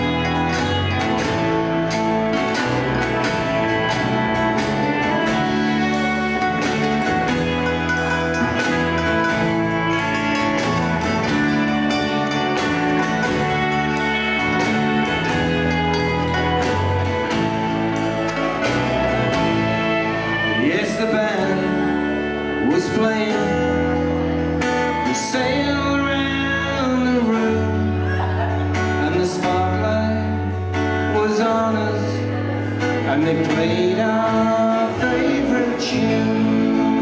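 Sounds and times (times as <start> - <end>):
live folk band playing: 0.0 - 37.0
person singing: 19.3 - 37.0.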